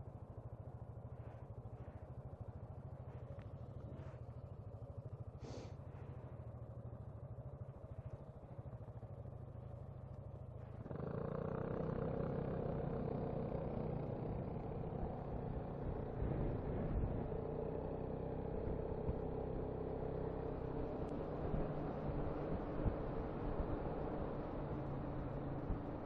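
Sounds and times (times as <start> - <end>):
wind and road noise: 0.0 - 26.0
scooter engine running: 5.9 - 26.0.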